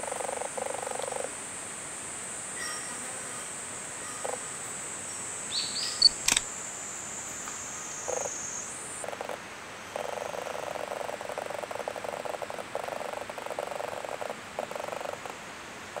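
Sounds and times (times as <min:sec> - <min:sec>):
bird chirps: 0:05.5 - 0:06.4
sharp click: 0:06.0 - 0:06.5.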